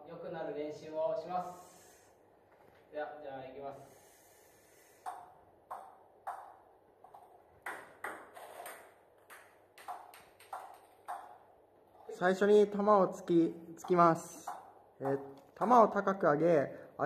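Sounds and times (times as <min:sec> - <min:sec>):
ping pong ball tapped on racket: 0:05.0 - 0:11.4, 0:13.8 - 0:15.2.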